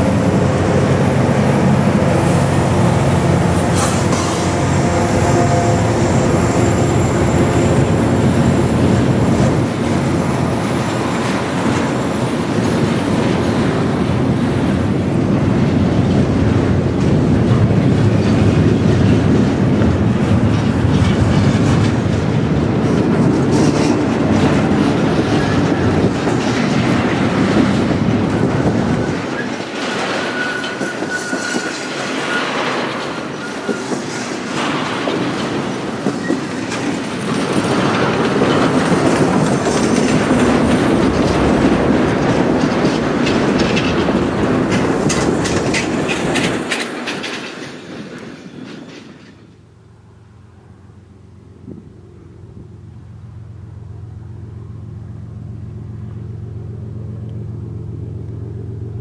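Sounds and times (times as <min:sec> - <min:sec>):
train wheels rumbling and clattering: 0:00.0 - 0:59.0
faint high wheel squeal: 0:28.2 - 0:34.7.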